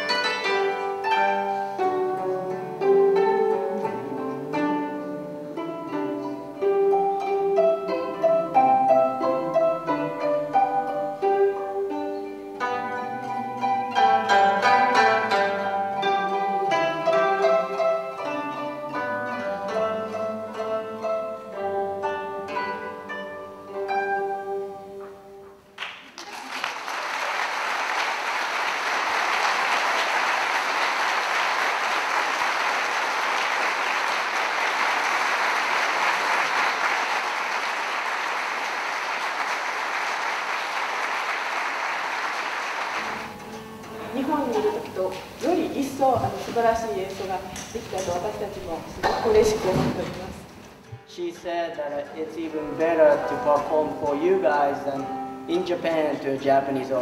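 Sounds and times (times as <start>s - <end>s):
plucked zither duet: 0.0s - 25.7s, 43.0s - 57.0s
audience applause: 25.8s - 43.4s.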